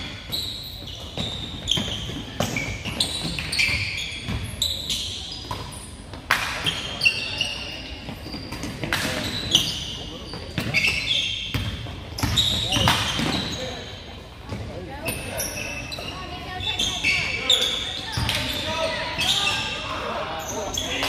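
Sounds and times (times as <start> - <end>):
sneakers squeaking on court: 0.0 - 21.0
voices echoing in hall: 6.3 - 21.0
basketball bouncing: 11.5 - 13.4.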